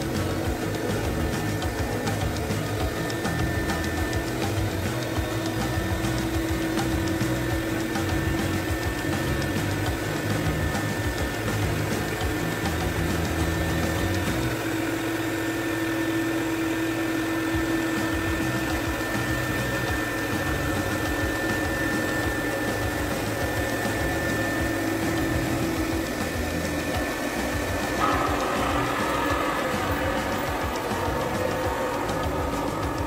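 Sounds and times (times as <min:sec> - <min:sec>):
vacuum motor whirring: 0:00.0 - 0:33.0.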